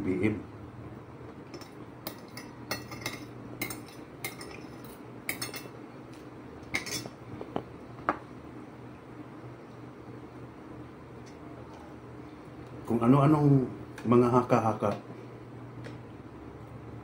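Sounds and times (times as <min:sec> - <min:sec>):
low steady hum: 0:00.0 - 0:17.0
cutlery clinking on plates: 0:01.5 - 0:05.7, 0:06.7 - 0:07.2.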